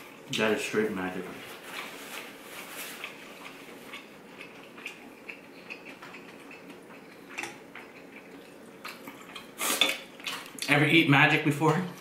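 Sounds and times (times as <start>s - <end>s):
quiet chewing: 1.6s - 10.7s.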